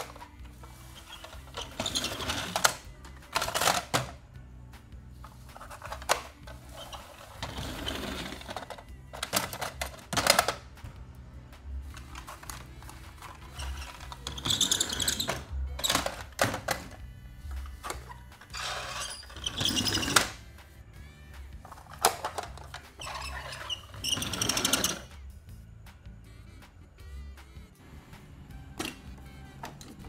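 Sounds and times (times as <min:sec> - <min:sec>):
plastic toy trucks clicking and rattling: 0:00.0 - 0:04.2, 0:05.3 - 0:10.7, 0:12.0 - 0:17.0, 0:21.6 - 0:25.1
background music: 0:00.0 - 0:30.0.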